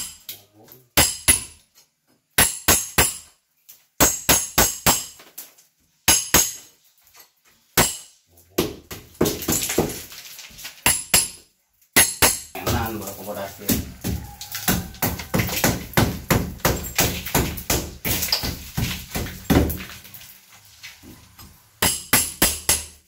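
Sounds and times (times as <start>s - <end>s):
hammer striking steel chisel: 1.0s - 1.6s, 2.4s - 3.3s, 7.8s - 8.1s, 12.0s - 13.0s, 21.8s - 23.0s.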